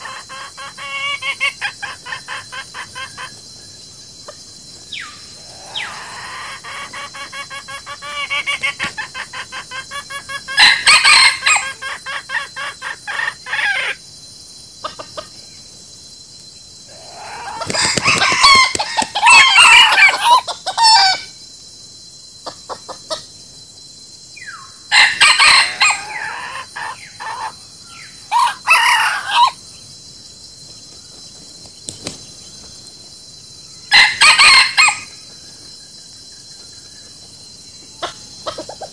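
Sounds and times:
chickens clucking: 0.0 - 3.4, 5.4 - 10.6, 14.8 - 15.4, 38.0 - 38.9
rooster crowing: 5.5 - 6.9, 10.4 - 11.8, 16.9 - 21.3, 24.9 - 27.5, 28.3 - 29.6, 33.9 - 35.2.

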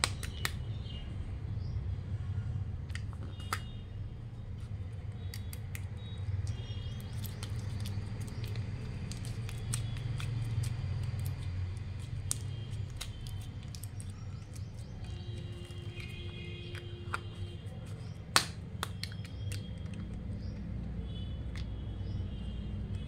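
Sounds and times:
slime being pressed: 6.9 - 17.4.

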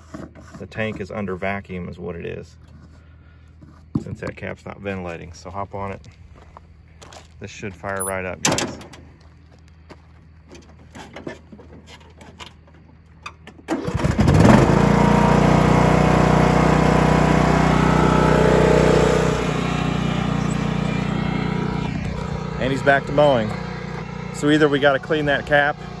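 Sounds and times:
riding mower engine cranking and running: 10.5 - 26.0.

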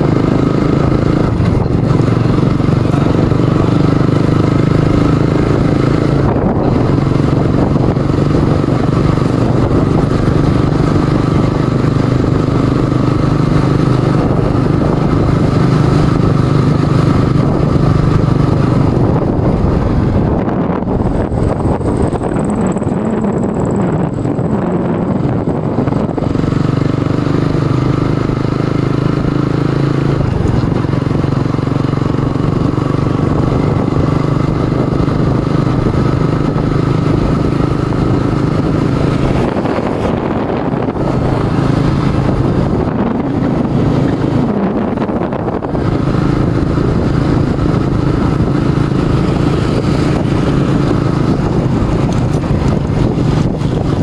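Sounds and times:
motorcycle engine running: 0.0 - 54.0
wind rush on microphone: 0.0 - 54.0.

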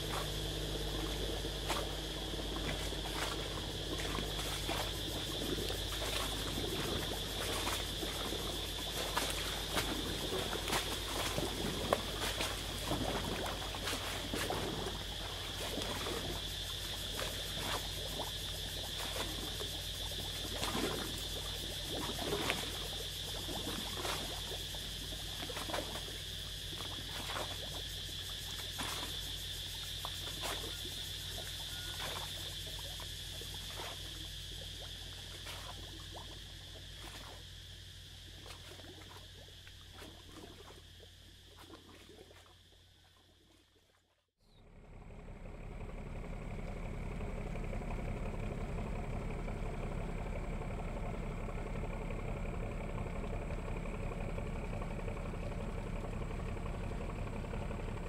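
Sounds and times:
high-pitched insect drone: 0.0 - 41.8
frogs calling: 0.0 - 43.7.

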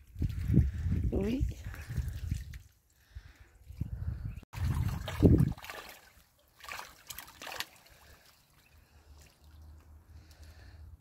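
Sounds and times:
ducklings splashing water: 0.1 - 3.4, 4.6 - 10.7.

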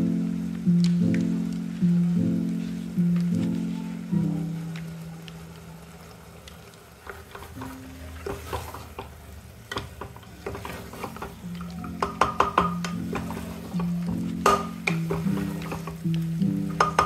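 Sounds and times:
light frying sizzle: 0.0 - 17.0
wooden spoon scraping metal pot: 7.1 - 9.1, 9.7 - 17.0.

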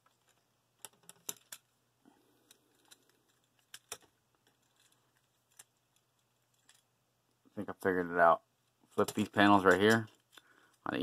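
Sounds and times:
plastic action figure joints clicking: 0.0 - 1.7, 2.5 - 6.9, 9.0 - 10.5.

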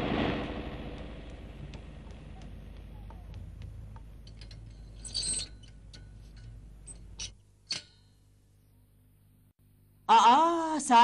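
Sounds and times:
low engine rumble: 0.0 - 5.0.

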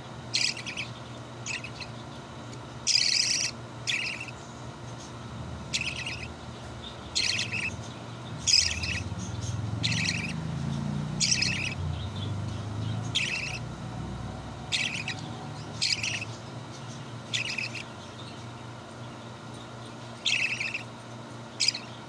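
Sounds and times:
chick begging chirps: 0.3 - 2.2, 2.9 - 4.4, 5.0 - 18.6, 20.2 - 21.0, 21.6 - 22.0
low hum: 0.4 - 21.1.

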